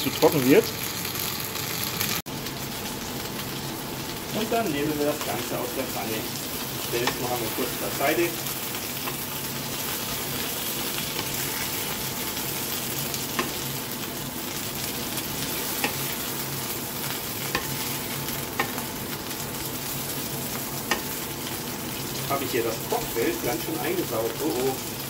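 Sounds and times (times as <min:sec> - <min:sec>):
chicken sizzling in oil: 0:00.0 - 0:25.0
spatula scraping and tapping pan: 0:13.2 - 0:13.6, 0:17.4 - 0:18.8, 0:20.5 - 0:21.1.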